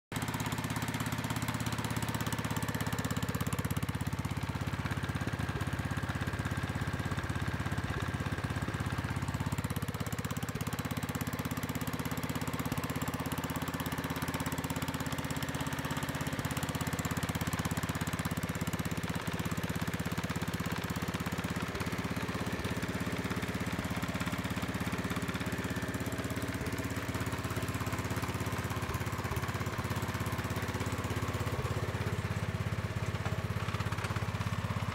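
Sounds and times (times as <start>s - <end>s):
rotovator engine running: 20.6s - 34.9s.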